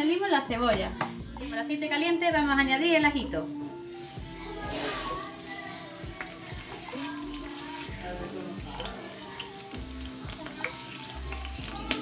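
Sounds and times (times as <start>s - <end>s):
garlic sizzling in oil: 3.1s - 12.0s.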